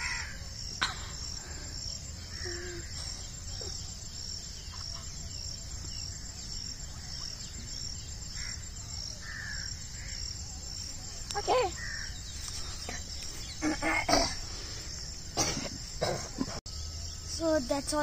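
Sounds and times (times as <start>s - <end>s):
faint bird calls: 0.0s - 10.3s, 11.3s - 14.8s
insects chirping: 0.0s - 18.0s.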